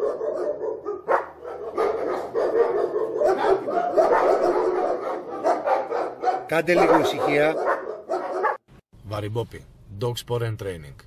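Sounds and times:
dogs barking: 0.0 - 8.7.

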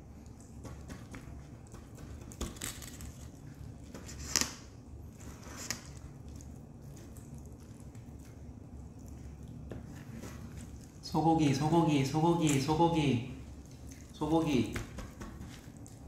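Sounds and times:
crinkles and clicks: 0.0 - 11.1
low steady hum: 0.0 - 16.0.

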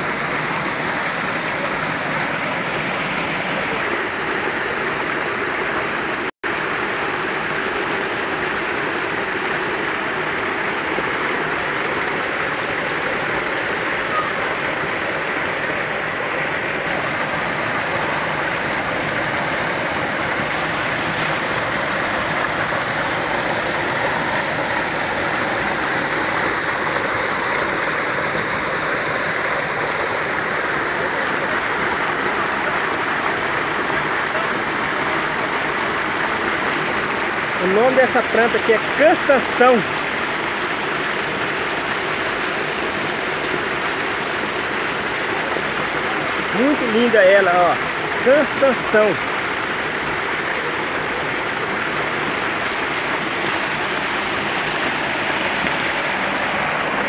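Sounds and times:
water rushing over rocks: 0.0 - 57.0.

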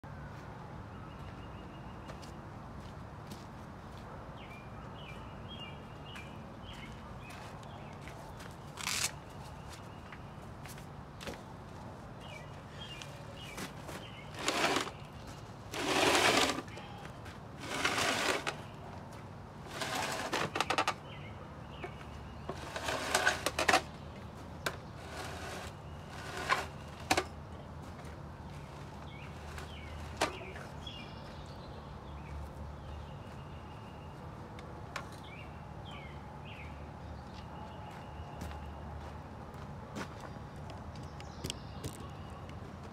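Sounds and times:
birds chirping: 1.0 - 42.9
crunching and scraping on gravel: 6.8 - 9.8, 12.8 - 21.0, 22.3 - 31.5.

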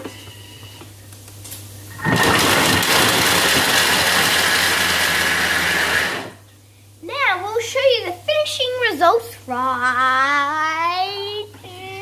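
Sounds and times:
kitchen machine motor whining: 1.9 - 6.4.

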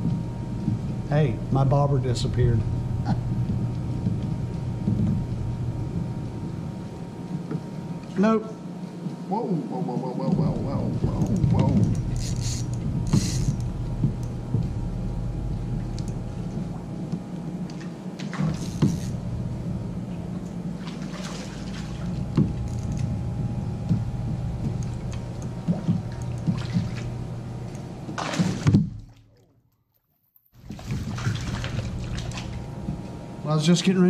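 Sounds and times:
steady low rumble: 0.0 - 28.3, 30.6 - 34.0
water splashing around kayak: 20.7 - 22.7, 24.0 - 27.2, 28.0 - 29.6, 30.6 - 33.0.

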